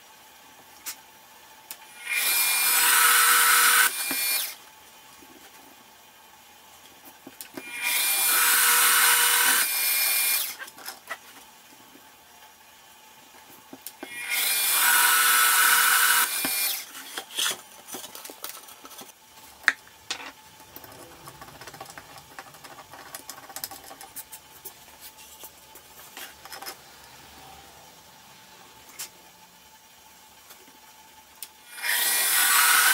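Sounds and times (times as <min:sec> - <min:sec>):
drill press boring into wood: 0:02.0 - 0:04.6, 0:07.6 - 0:10.6, 0:14.0 - 0:17.5, 0:31.7 - 0:32.9.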